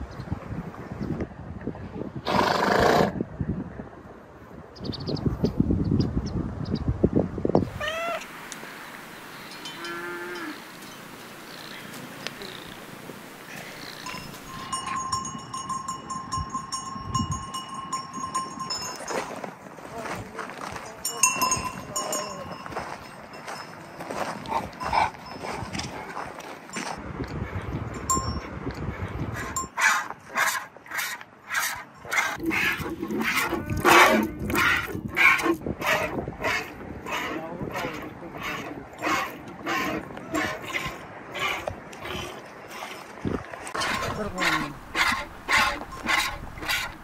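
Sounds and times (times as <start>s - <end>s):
livestock bell ringing: 9.5s - 11.1s, 14.0s - 19.4s, 20.7s - 24.2s, 28.0s - 28.5s.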